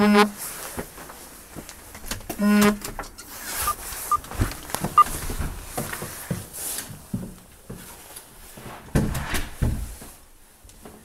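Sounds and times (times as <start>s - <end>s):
loud buzzing tone: 0.0s - 0.4s, 2.4s - 2.8s
footsteps: 3.4s - 7.9s.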